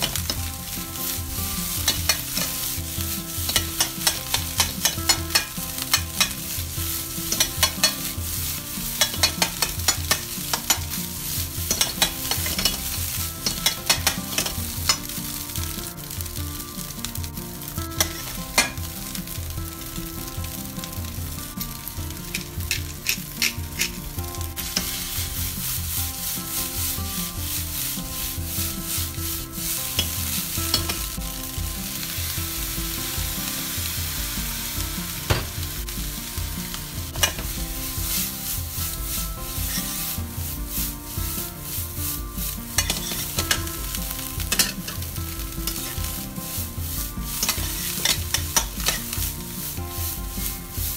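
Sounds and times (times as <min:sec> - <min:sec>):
rice sizzling in a frying pan: 0:00.0 - 0:50.9.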